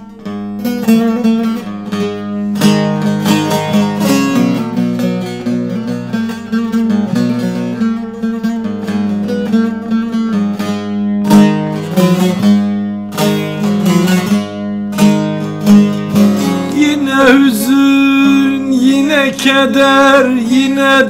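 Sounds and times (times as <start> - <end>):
plucked string instrument melody: 0.0 - 21.0.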